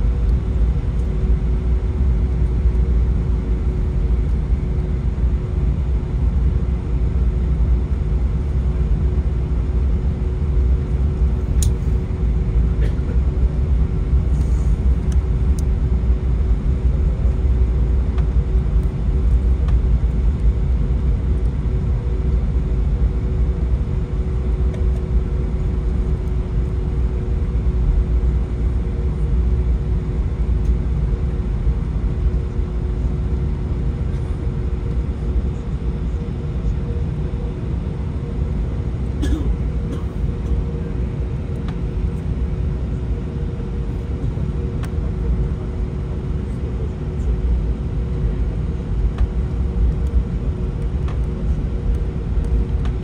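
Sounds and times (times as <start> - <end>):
jet engines idling hum: 0.0 - 53.0
aircraft wheels rumbling: 45.6 - 53.0.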